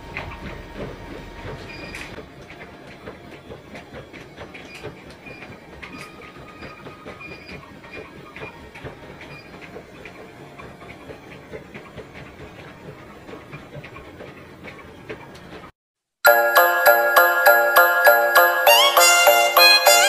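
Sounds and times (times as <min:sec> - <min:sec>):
feet thudding on treadmill belts: 0:00.0 - 0:15.7
treadmills running: 0:00.0 - 0:15.7, 0:16.3 - 0:20.0.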